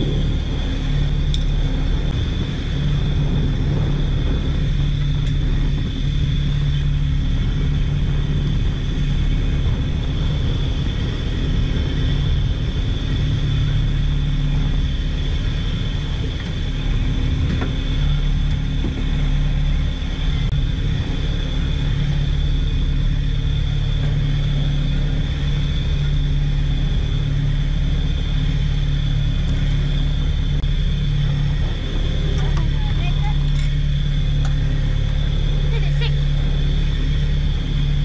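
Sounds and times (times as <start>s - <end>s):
boat engine drone: 0.0s - 38.0s
high machinery whine: 0.0s - 38.0s.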